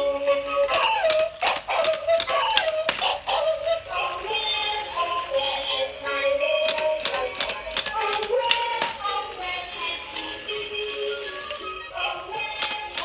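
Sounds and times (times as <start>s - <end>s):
toy clicks: 0.0s - 9.6s, 12.3s - 13.0s.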